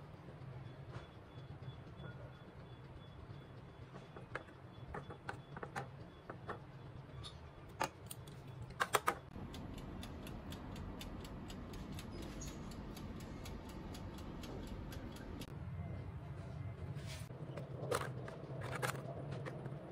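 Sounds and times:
oven ticking: 0.0s - 15.6s
oven humming: 0.0s - 19.9s.

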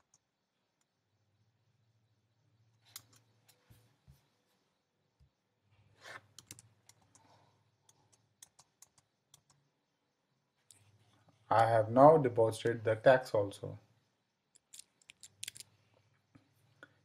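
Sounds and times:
computer keyboard keystrokes: 6.4s - 7.3s, 7.9s - 9.6s.

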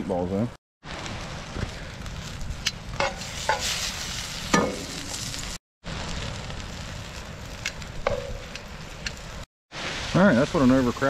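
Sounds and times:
meatballs sizzling in butter: 3.0s - 5.6s.

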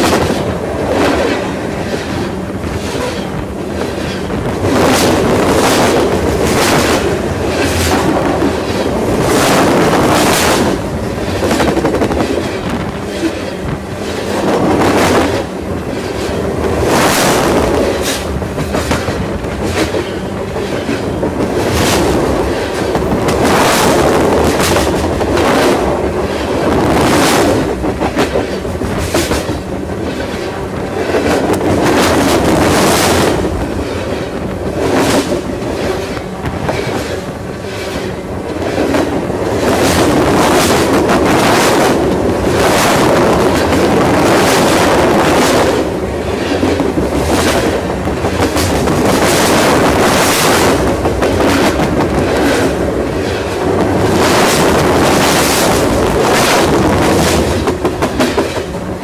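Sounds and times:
sharp clacks of train wheels: 0.0s - 59.0s
train wheels rumbling on rails: 0.0s - 59.0s.

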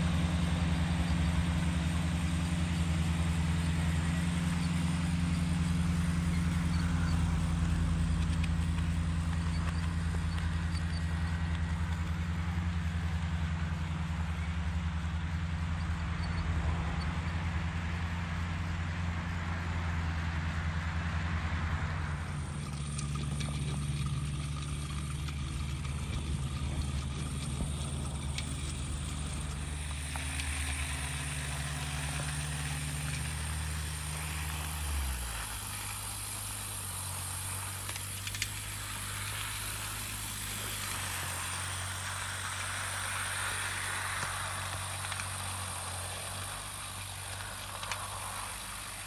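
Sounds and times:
model locomotive humming: 0.0s - 49.0s
faint clicks: 37.6s - 41.6s, 43.5s - 49.0s.

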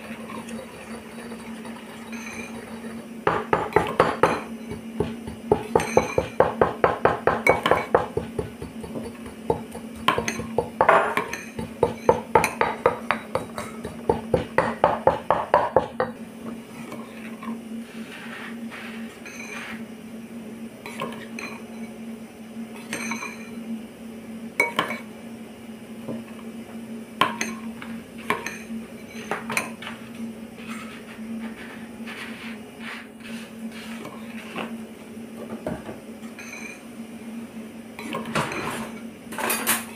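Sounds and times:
mortar and pestle pounding: 3.2s - 16.2s.

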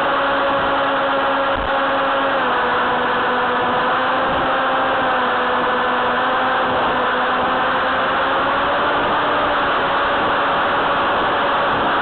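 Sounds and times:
electric motor and propeller hum: 0.0s - 12.0s
wind rushing over microphone: 6.5s - 12.0s.

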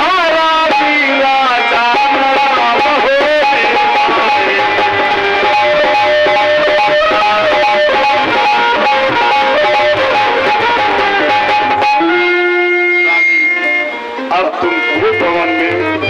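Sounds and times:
fast-strummed plucked string music: 0.0s - 16.0s.

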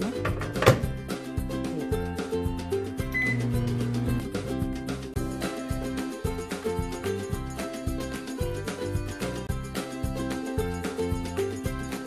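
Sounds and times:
background music with steady beat: 0.0s - 12.0s
microwave keypad beep: 3.1s - 3.6s.

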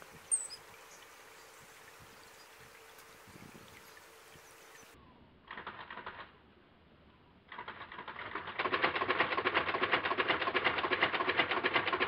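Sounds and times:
camera shutter rapid burst: 5.5s - 6.3s.

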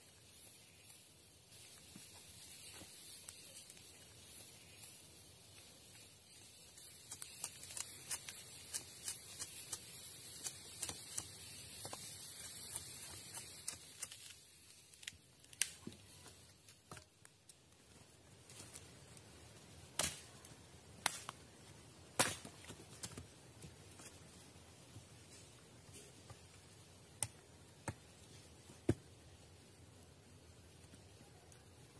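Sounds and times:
high-pitched insect buzz: 0.0s - 15.1s.

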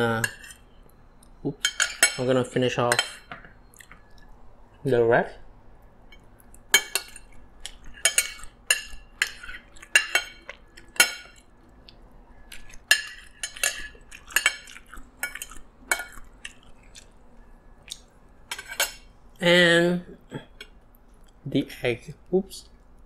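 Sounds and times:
cutlery clinking on a plate: 6.7s - 11.4s, 12.9s - 16.2s.

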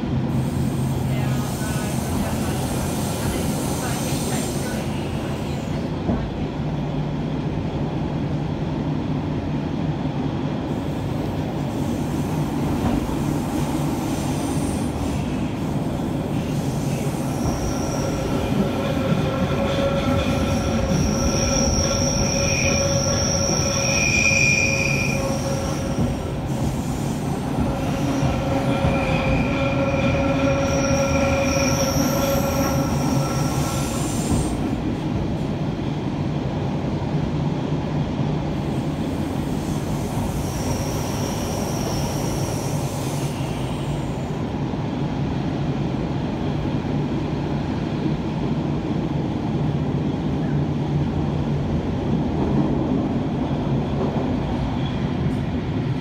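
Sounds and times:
train wheels rumbling on rail: 0.0s - 56.0s
high wheel squeal: 16.3s - 34.5s, 40.3s - 44.2s.

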